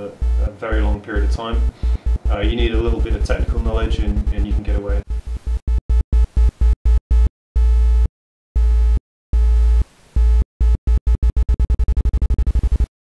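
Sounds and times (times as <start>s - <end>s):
buzzy synthesizer bass tone: 0.0s - 12.9s.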